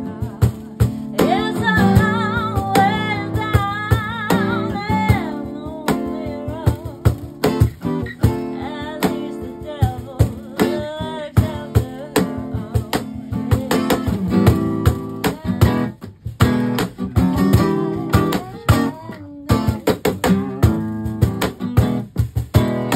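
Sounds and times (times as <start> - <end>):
person singing: 0.0 - 15.9, 17.5 - 20.8
cajon beat: 0.0 - 22.9
strummed acoustic guitar: 0.0 - 22.9.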